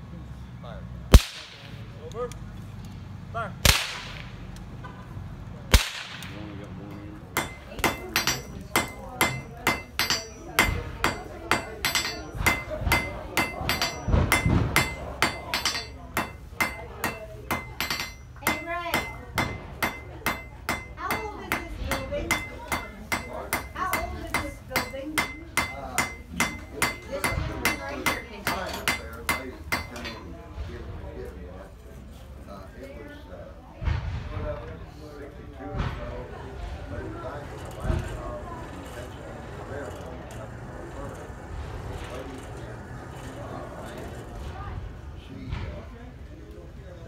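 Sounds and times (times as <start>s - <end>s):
hammer striking iron on anvil: 5.8s - 30.2s.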